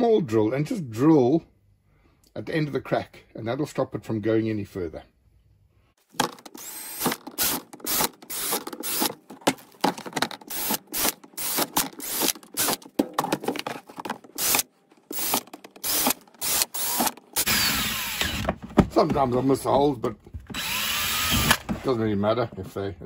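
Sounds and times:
cordless drill boring plastic: 6.2s - 9.2s, 10.4s - 12.8s, 14.4s - 18.5s, 20.5s - 21.7s.

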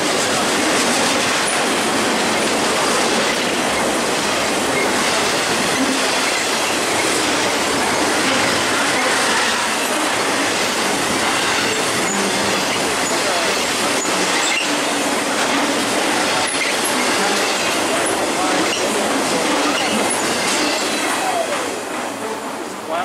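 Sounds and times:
steel wheels on rails: 0.0s - 23.0s.

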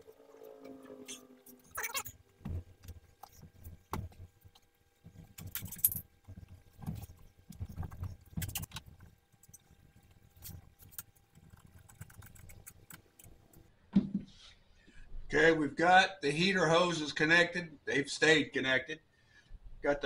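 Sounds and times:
rubber hose knocking and rubbing: 2.3s - 13.1s, 14.0s - 14.4s.

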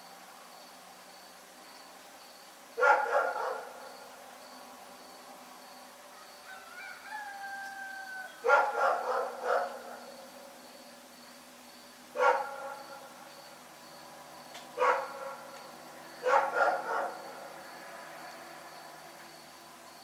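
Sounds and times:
dog barking: 2.8s - 3.8s, 8.4s - 10.1s, 12.2s - 13.0s, 14.8s - 15.5s, 16.2s - 17.4s.

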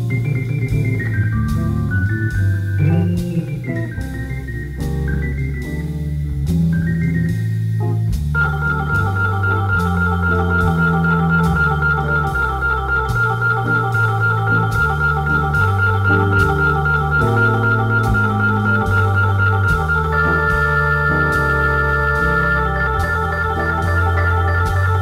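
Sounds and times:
light steady beat: 0.0s - 25.0s
stepping bass line: 0.0s - 25.0s
held organ chord: 8.4s - 25.0s.

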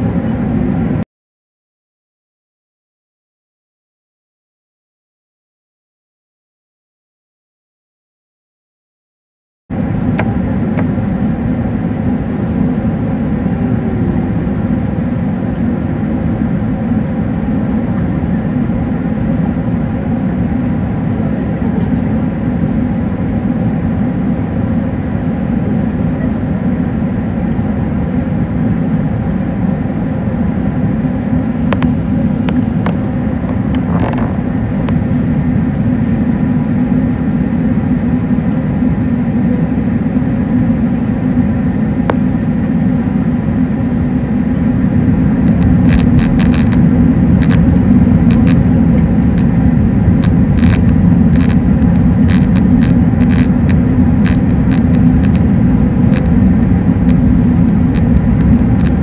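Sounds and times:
airplane cabin engine roar: 0.0s - 1.0s, 9.7s - 59.0s
faint whining tones: 40.5s - 59.0s.

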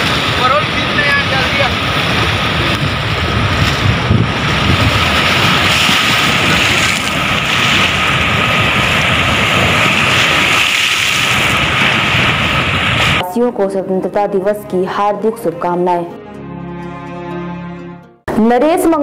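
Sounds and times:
floodwater rushing: 0.0s - 13.2s
wind buffeting microphone: 0.0s - 13.2s.

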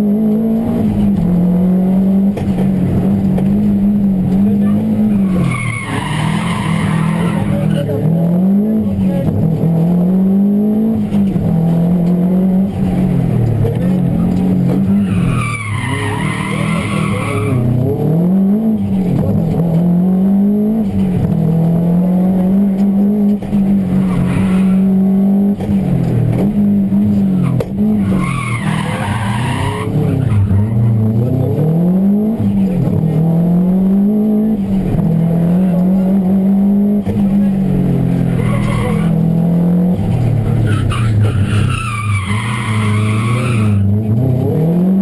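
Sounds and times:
rally car engine revving: 0.0s - 45.0s
tyres squealing: 4.6s - 7.9s, 14.2s - 17.8s, 27.4s - 31.0s, 38.2s - 39.3s, 40.6s - 44.0s.

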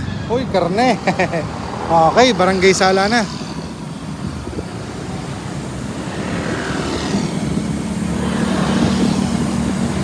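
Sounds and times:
road traffic: 0.0s - 10.0s
vehicle engine hum: 0.0s - 10.0s
wind on microphone: 3.2s - 10.0s.

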